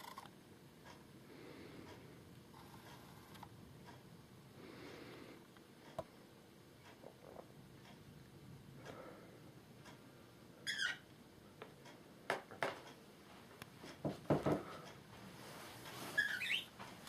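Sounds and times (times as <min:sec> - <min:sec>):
parrot chirps: 0:10.6 - 0:11.1, 0:16.2 - 0:16.7.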